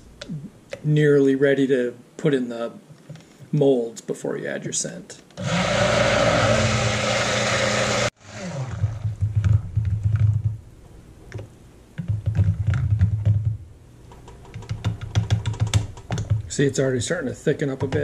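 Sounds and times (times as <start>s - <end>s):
stick blender whirring: 5.4s - 9.2s.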